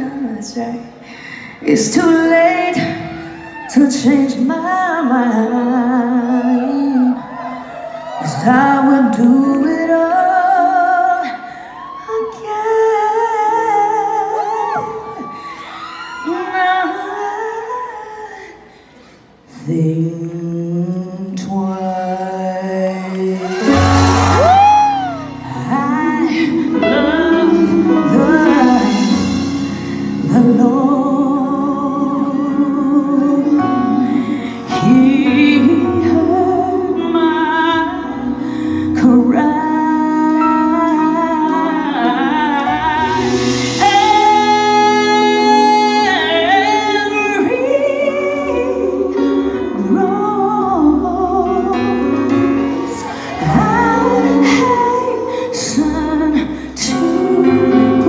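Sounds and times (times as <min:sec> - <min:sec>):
woman singing live: 0:00.0 - 0:18.9, 0:19.5 - 0:58.0
band playing: 0:23.4 - 0:58.0.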